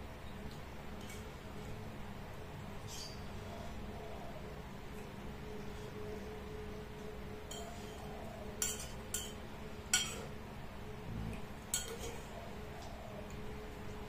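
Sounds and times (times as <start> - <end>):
steady low hum: 0.0 - 14.0
metal spoon clinking on plate: 8.6 - 10.3, 11.7 - 12.2.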